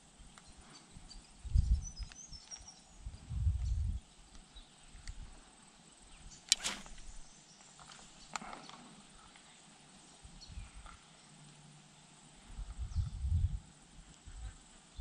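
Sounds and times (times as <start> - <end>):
faint ticks: 4.3 - 5.2, 14.1 - 14.3
sharp clicks: 6.4 - 7.2.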